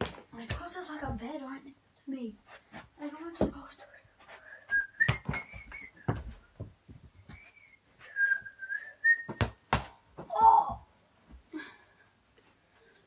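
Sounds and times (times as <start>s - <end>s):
person whistling a tune: 4.6s - 6.3s, 7.3s - 9.5s
football kicks thumping: 9.3s - 10.3s.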